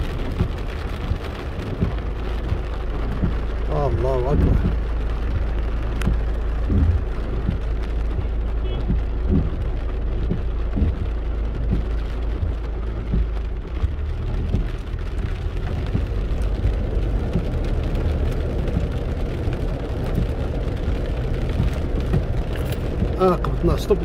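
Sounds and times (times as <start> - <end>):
car rumbling on wet street: 0.0 - 24.0
heavy rain on car roof: 0.0 - 24.0
short irregular knocks: 8.8 - 13.9.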